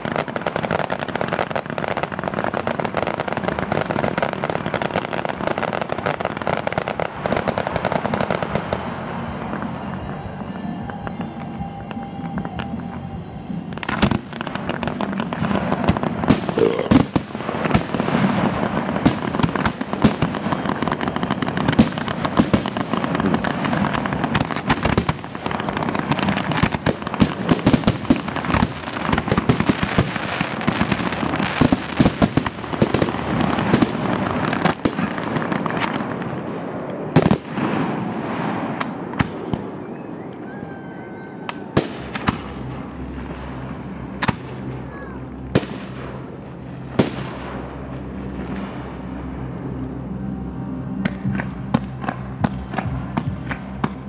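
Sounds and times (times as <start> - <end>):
fireworks bangs and crackling: 0.0 - 54.0.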